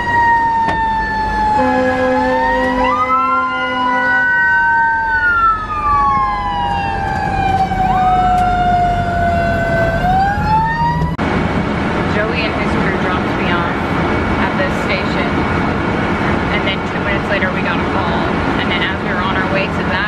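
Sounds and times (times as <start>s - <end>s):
fire engine siren wailing: 0.0s - 20.0s
truck engine rumble: 0.0s - 20.0s
horn blast: 1.5s - 4.3s.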